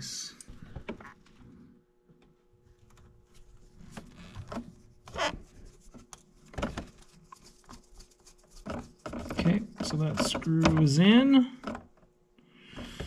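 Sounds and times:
soft rubbing and light clicks: 2.8 - 11.0.

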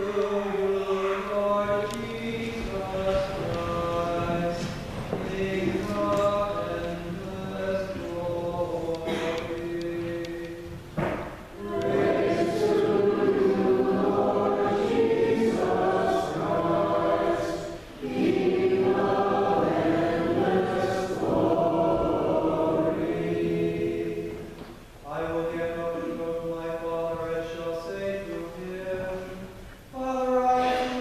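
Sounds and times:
choir singing: 0.0 - 10.8, 11.6 - 24.6.

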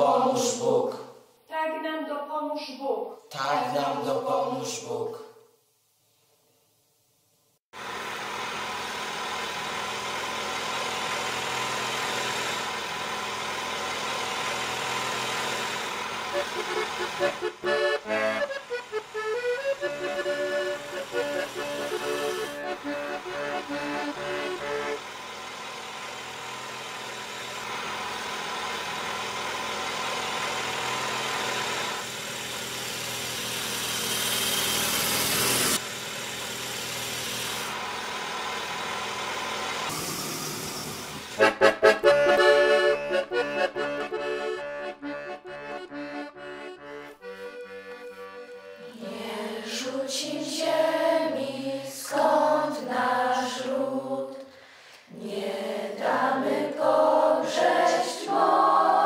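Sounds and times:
children singing together: 0.0 - 1.0, 48.8 - 54.5, 55.1 - 59.0
accordion playing a tune: 15.0 - 25.4, 41.2 - 50.0, 56.1 - 59.0.

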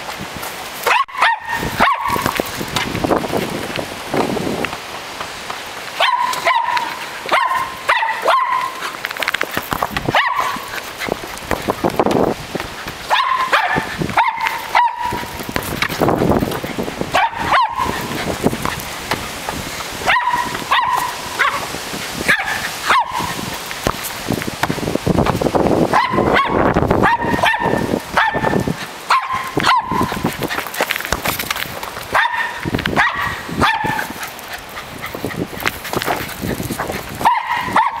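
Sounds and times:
small dog barking: 0.8 - 2.4, 6.0 - 8.9, 10.1 - 10.7, 13.0 - 15.4, 17.1 - 18.2, 20.0 - 23.4, 25.9 - 30.2, 32.1 - 34.2, 37.2 - 38.0.

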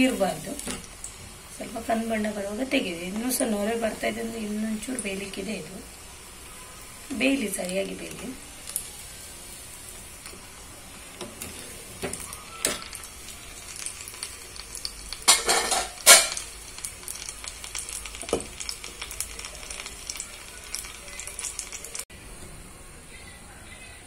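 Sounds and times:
oil sizzling and crackling: 0.0 - 22.4
metal skimmer scraping a pan: 15.3 - 16.4.

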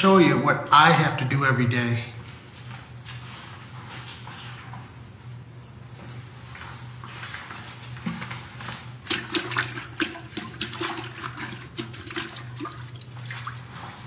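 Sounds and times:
mop splashing in toilet bowl: 7.3 - 14.0.

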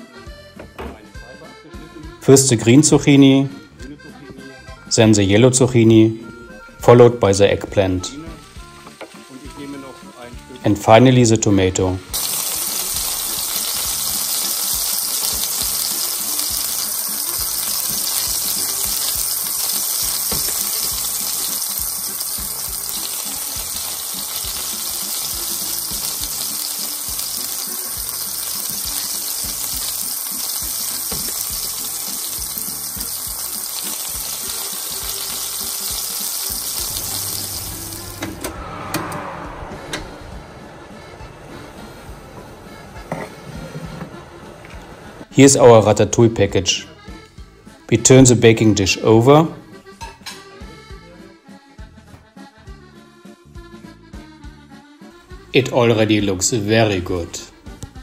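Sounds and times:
background music: 0.0 - 58.0
vegetables sizzling in oil: 8.1 - 10.6, 12.0 - 38.4.

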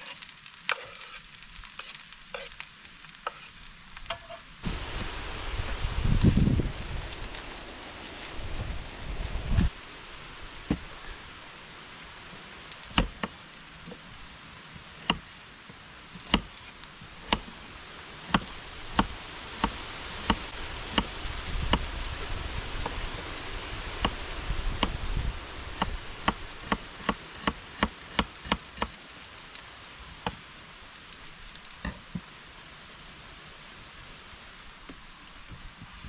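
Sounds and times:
steady outdoor hiss: 0.0 - 36.0.

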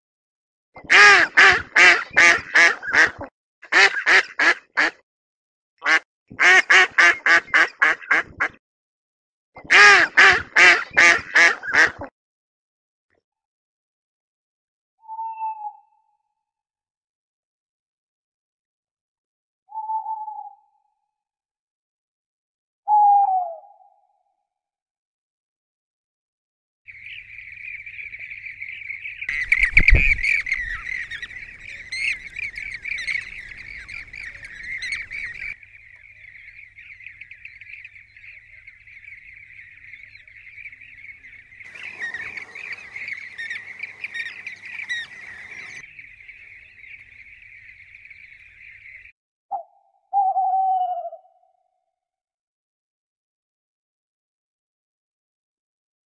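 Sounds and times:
birds chirping: 26.9 - 49.1
short falling bird call: 36.2 - 49.1.

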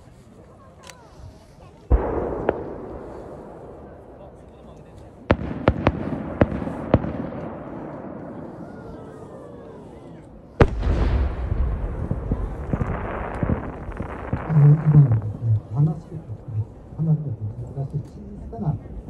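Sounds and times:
firework cracks: 1.8 - 8.9, 10.5 - 15.4.

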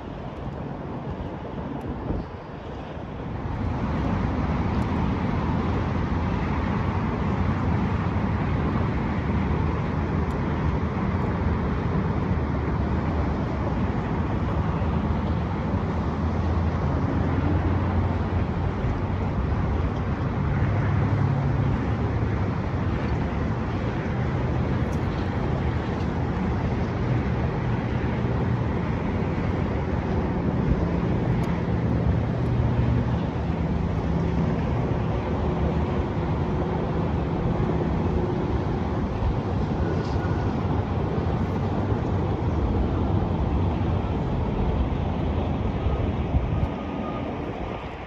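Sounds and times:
road traffic hum: 0.0 - 48.0.

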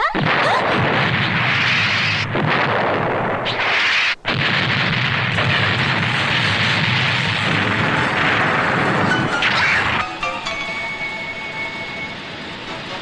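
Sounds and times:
cartoon explosion rumble: 0.1 - 10.1.

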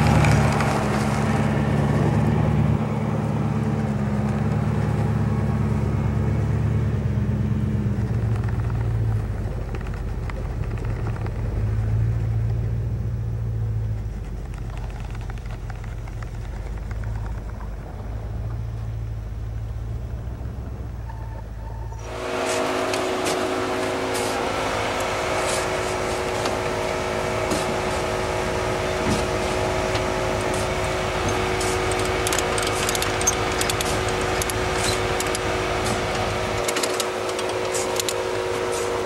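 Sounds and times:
engine running: 0.0 - 39.0
clicks and crackles: 8.0 - 12.0, 13.9 - 18.6, 31.3 - 38.3.

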